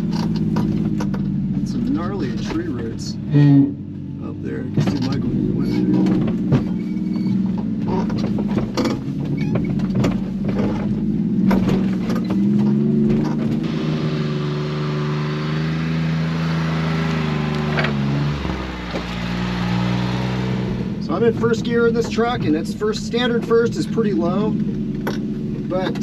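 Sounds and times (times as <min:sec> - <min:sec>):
cab knocks and rattles: 0:00.0 - 0:03.0, 0:04.7 - 0:13.6
small truck engine running: 0:00.0 - 0:26.0.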